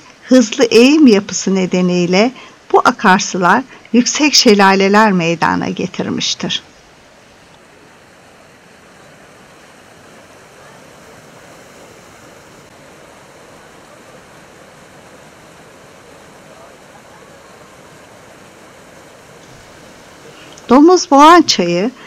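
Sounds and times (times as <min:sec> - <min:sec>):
water rushing over rocks: 0:06.6 - 0:22.0.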